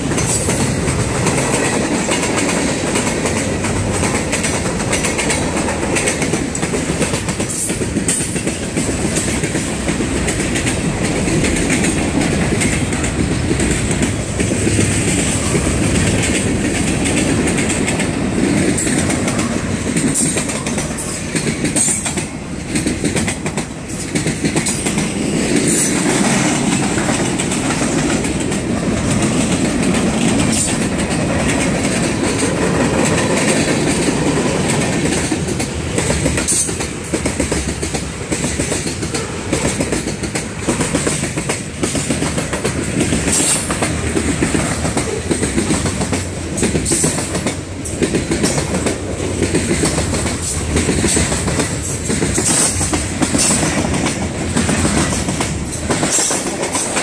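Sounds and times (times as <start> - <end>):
steel wheels rumbling on rail: 0.0 - 57.0
wheels clickety-clack on rail joints: 0.0 - 57.0.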